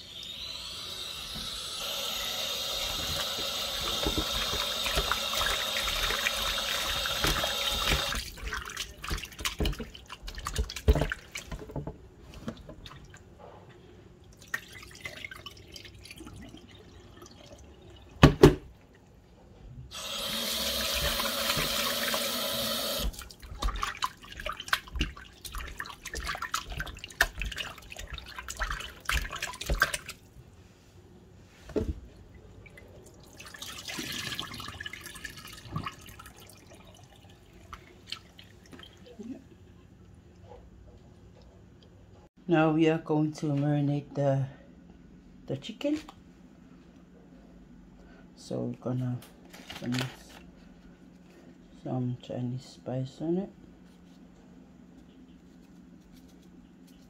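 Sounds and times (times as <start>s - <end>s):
tap running into sink: 3.0s - 8.2s
wet splashing: 3.7s - 11.8s, 14.3s - 18.0s, 22.9s - 30.3s, 32.6s - 39.4s.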